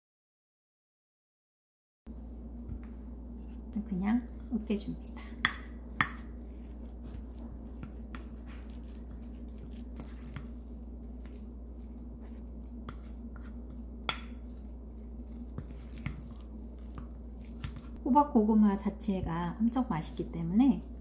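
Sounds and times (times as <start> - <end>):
steady low hum: 2.1 - 21.0
spoon mashing soft food: 2.6 - 18.0.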